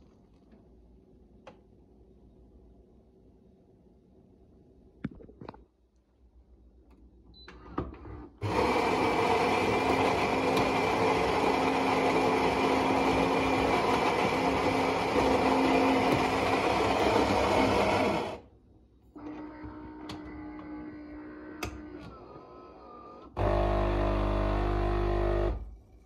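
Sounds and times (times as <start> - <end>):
coffee grinder grinding beans: 8.4 - 18.4, 23.4 - 25.6.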